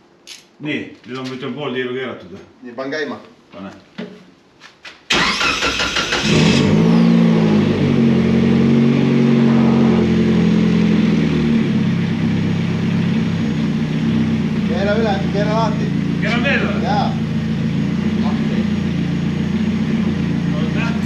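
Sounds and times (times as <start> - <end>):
engine cranking on starter: 5.1 - 7.1
engine idling: 5.1 - 21.0.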